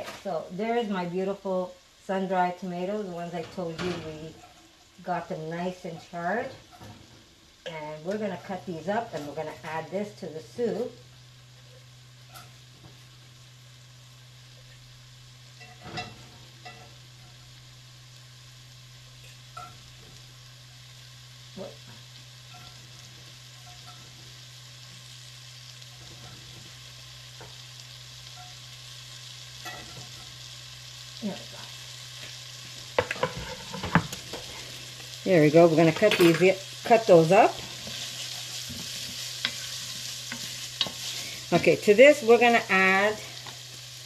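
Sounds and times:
frying sizzle: 0.0s - 44.0s
soft knocks and clicks in a pan: 32.9s - 34.5s.

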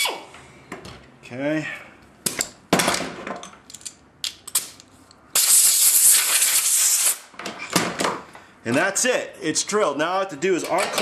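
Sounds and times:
pneumatic tool air hiss: 5.4s - 7.3s.

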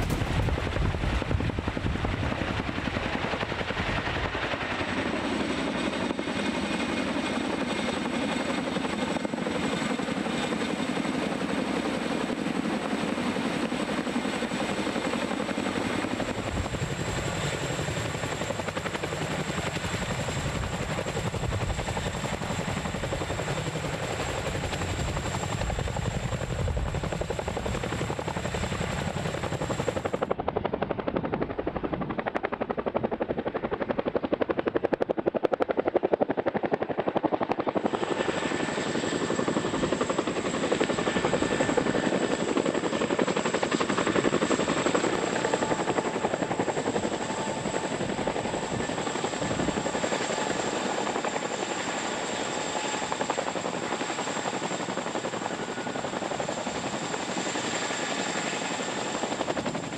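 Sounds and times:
turbine engine whine: 0.0s - 5.2s
helicopter rotor noise: 0.0s - 59.9s.

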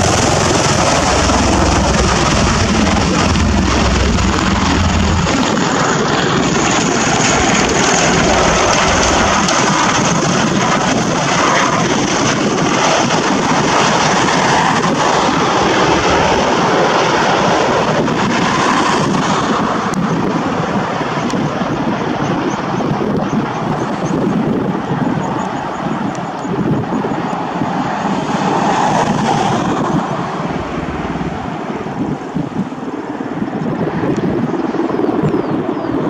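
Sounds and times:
tiltrotor aircraft flying low: 0.0s - 36.0s.

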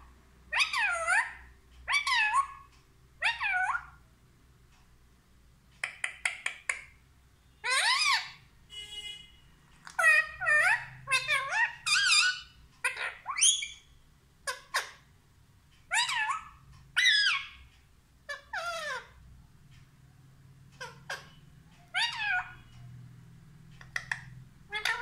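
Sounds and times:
parakeet calls: 0.1s - 4.0s, 5.8s - 7.0s, 7.6s - 8.5s, 9.8s - 15.1s, 15.8s - 19.2s, 20.6s - 22.7s, 23.8s - 25.0s.

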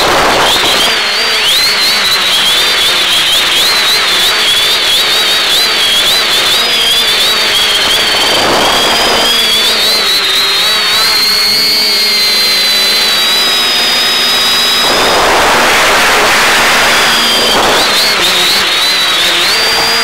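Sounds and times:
quadcopter motors whining: 0.0s - 20.0s
hissing rush: 6.0s - 10.6s, 13.0s - 20.0s.

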